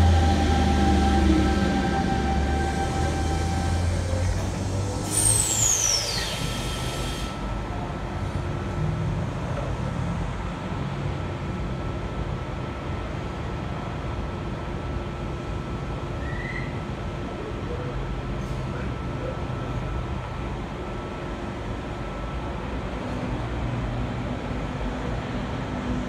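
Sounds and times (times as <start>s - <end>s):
air hiss with falling whistle: 0.0s - 7.4s, 16.2s - 16.8s
train low rumble: 0.0s - 26.0s.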